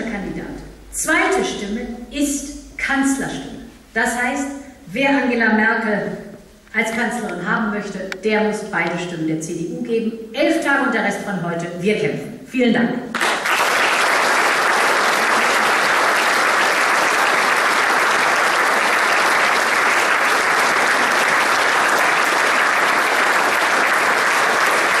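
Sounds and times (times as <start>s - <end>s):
audience applauding: 13.1s - 25.0s.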